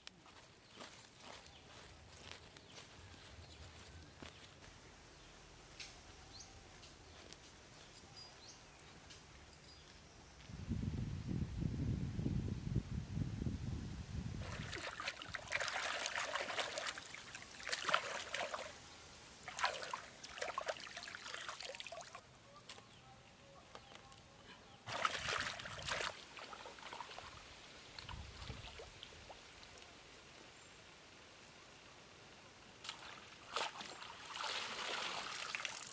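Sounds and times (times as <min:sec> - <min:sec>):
hand splashing water: 0:14.4 - 0:18.7, 0:19.5 - 0:22.2, 0:24.9 - 0:27.3.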